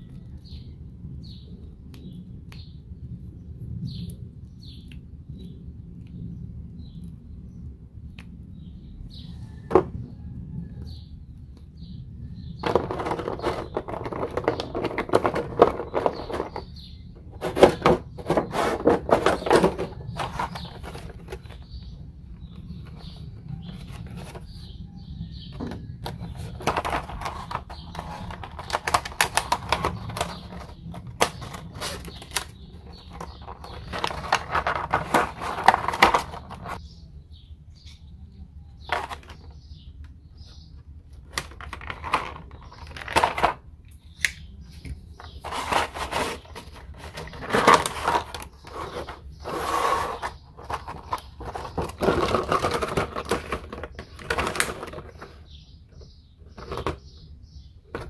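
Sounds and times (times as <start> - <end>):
plastic packaging crinkling: 26.0 - 36.8.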